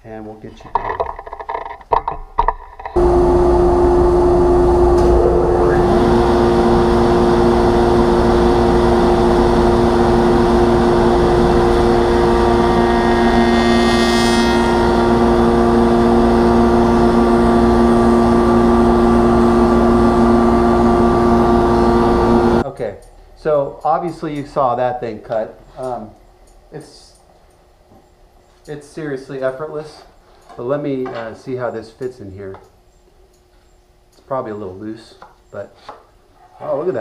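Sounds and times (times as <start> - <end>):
spindle shaper running: 2.9 - 22.6
cutter cutting wood panel: 3.0 - 22.6
dust collector running: 3.0 - 22.6.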